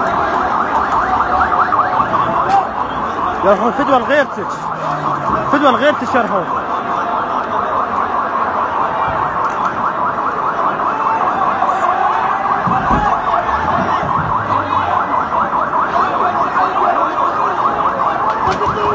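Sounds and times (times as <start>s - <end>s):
ambulance siren warbling: 0.0s - 18.9s.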